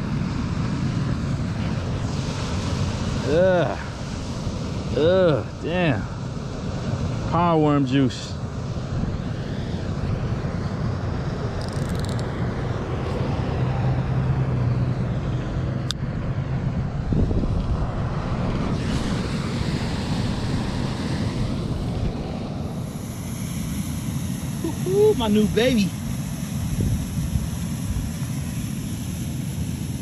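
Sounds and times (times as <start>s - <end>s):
wind buffeting microphone: 8.6s - 23.3s, 26.6s - 28.2s
sharp click: 11.6s - 12.3s.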